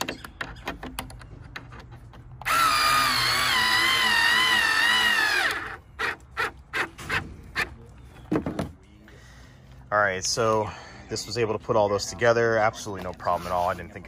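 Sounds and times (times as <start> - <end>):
cordless screwdriver whining: 2.4 - 6.2.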